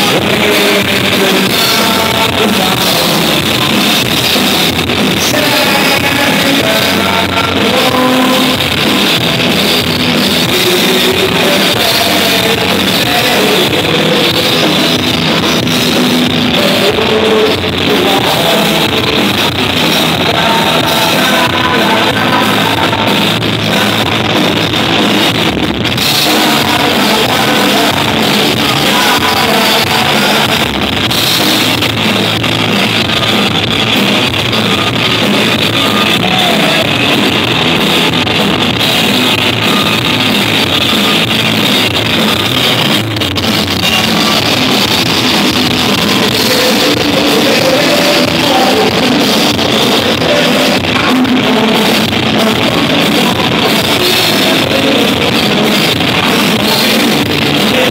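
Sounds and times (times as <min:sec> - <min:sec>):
live rock band playing: 0:00.0 - 0:57.9.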